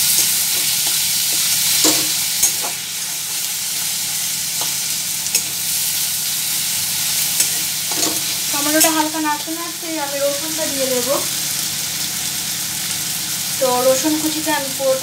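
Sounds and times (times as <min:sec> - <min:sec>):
vegetables sizzling in hot oil: 0:00.0 - 0:15.0.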